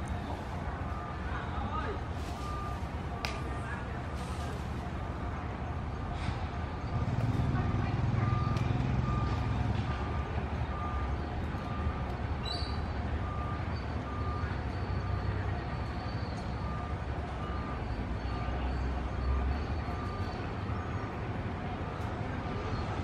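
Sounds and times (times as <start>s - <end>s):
faint high beeps: 0.0s - 3.8s, 6.8s - 21.2s.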